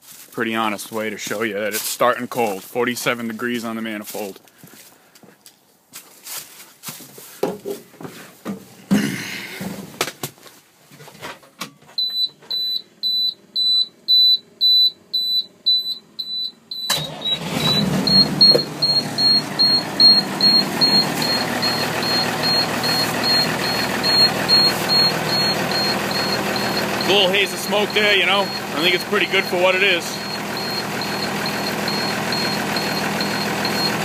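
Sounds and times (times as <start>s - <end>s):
truck engine starting and running: 12.0s - 34.0s
warning beeper pulsing: 13.1s - 34.0s.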